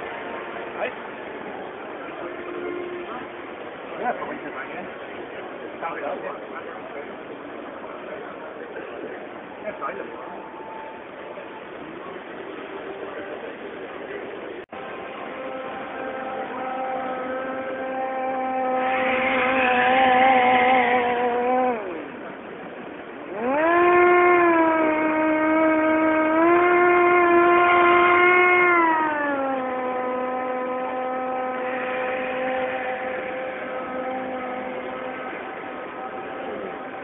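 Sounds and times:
model hovercraft motor humming: 0:00.0 - 0:37.0.

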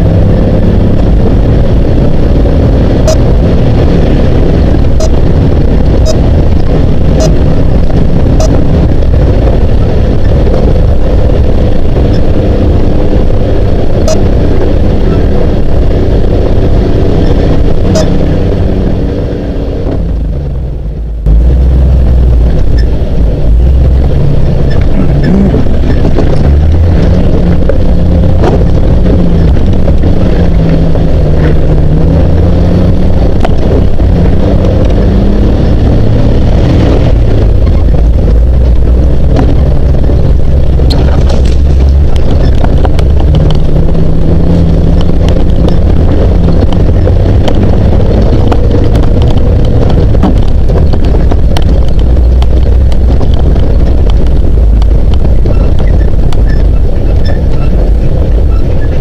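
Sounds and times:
engine running at low speed: 0:00.0 - 0:59.0
wind on microphone: 0:00.0 - 0:59.0.

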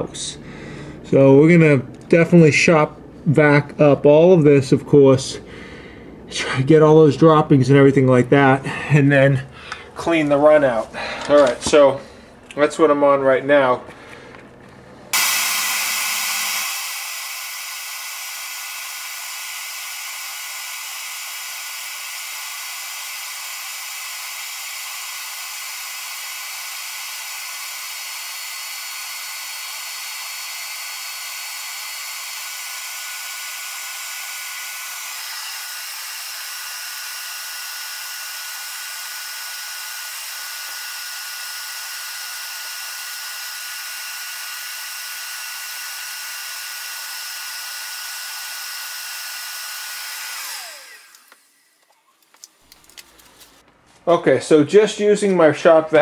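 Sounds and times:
shop vacuum running: 0:09.3 - 0:52.0.

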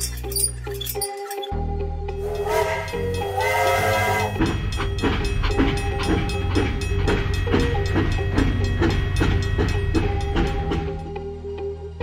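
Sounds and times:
background music with quick beat: 0:02.3 - 0:11.2.

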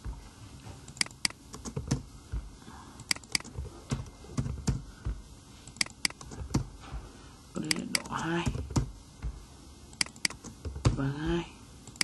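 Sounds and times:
typing on computer keyboard: 0:03.0 - 0:03.6, 0:10.0 - 0:10.5.

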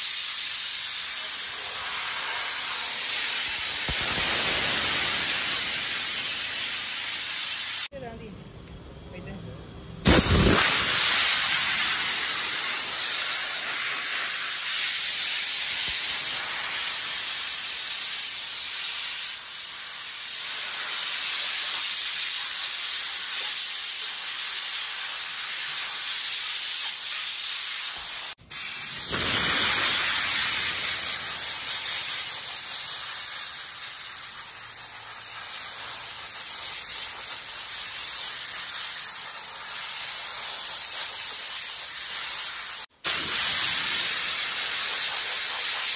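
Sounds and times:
steam jet hissing: 0:00.0 - 0:07.9, 0:10.0 - 0:45.9.

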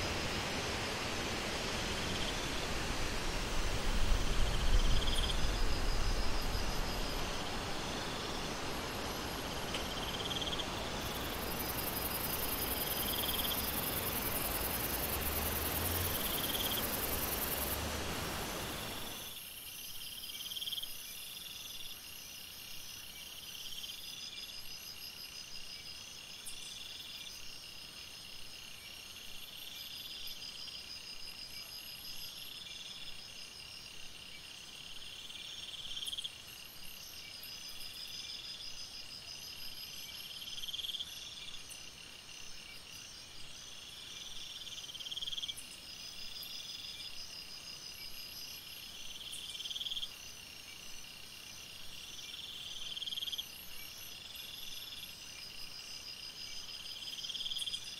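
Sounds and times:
faint hiss: 0:00.0 - 0:57.9
cricket-like trills: 0:04.0 - 0:22.0
insect buzzing call: 0:04.2 - 0:19.4.

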